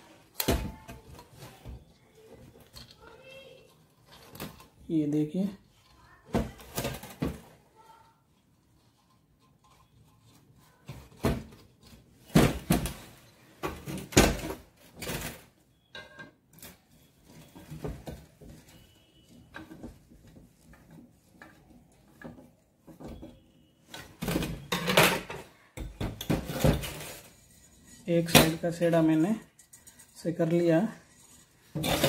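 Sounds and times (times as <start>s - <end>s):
tools clattering against metal: 23.9s - 32.0s.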